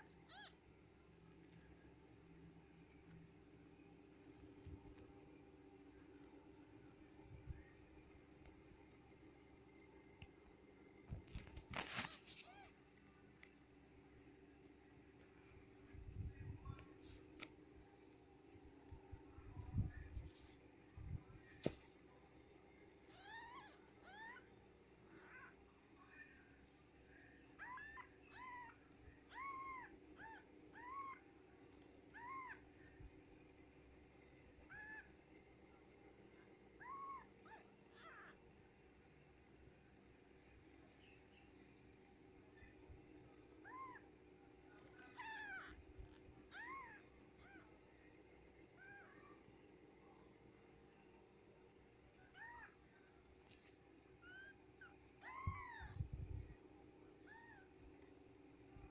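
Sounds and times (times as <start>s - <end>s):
kittens mewing: 27.6s - 31.3s, 32.1s - 32.7s, 34.7s - 35.1s, 36.8s - 38.4s, 43.6s - 44.2s, 44.8s - 47.8s, 52.2s - 52.8s, 54.2s - 56.1s, 57.2s - 57.8s.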